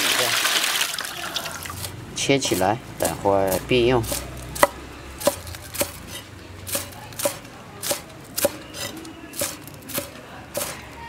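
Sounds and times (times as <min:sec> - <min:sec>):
cleaver chopping on wooden block: 0:04.0 - 0:10.8.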